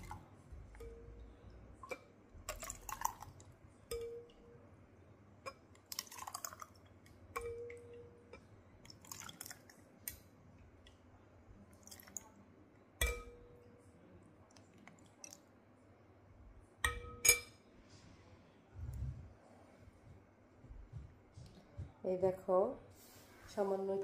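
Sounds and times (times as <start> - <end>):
glass clinking with ice: 3.9 - 4.6, 7.4 - 8.4, 13.0 - 13.6, 16.8 - 17.6.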